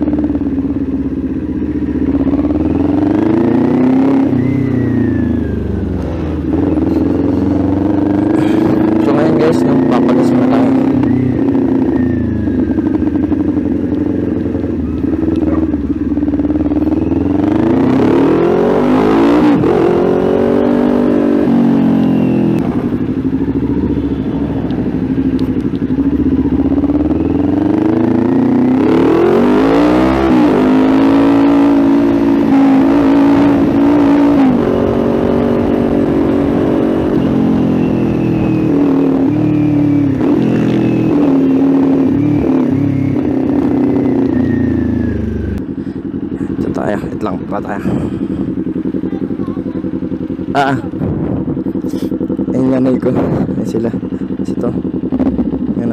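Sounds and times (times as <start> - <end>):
motorcycle engine revving: 0.0 - 55.9
rider talking: 6.8 - 11.3, 15.2 - 15.8, 46.3 - 51.0, 51.8 - 55.0, 55.6 - 55.9.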